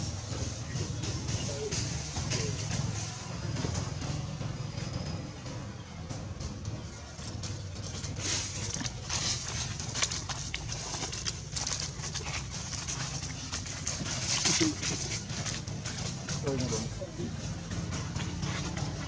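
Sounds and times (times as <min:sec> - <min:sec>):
dry leaves crackling underfoot: 0:07.8 - 0:19.0.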